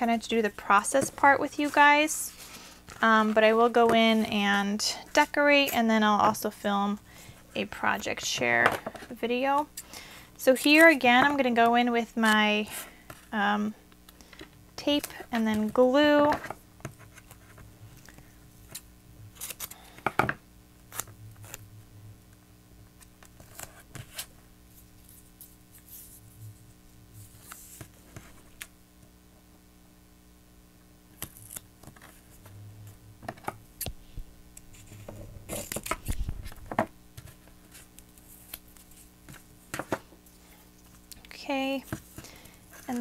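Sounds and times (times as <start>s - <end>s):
tape tearing and crinkling: 31.2s - 32.4s, 34.7s - 39.1s.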